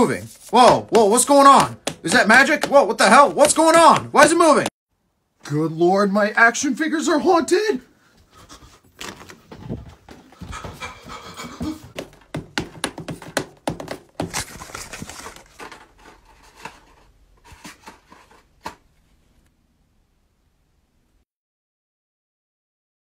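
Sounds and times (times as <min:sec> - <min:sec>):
person panting: 0:08.0 - 0:08.9, 0:10.1 - 0:12.1
knocks and bumps: 0:09.0 - 0:15.8.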